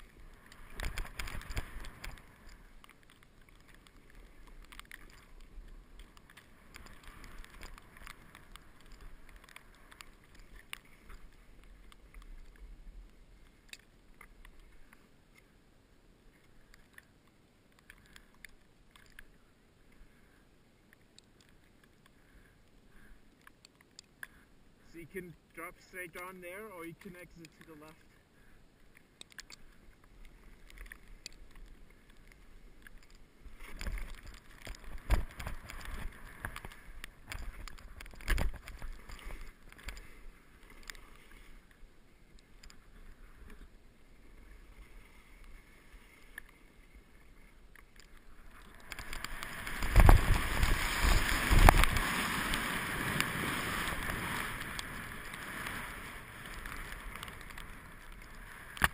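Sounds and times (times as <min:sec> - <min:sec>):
rush of air and skis: 0:29.8 - 0:41.6, 0:48.2 - 0:58.9
skis swishing through snow: 0:48.3 - 0:58.8.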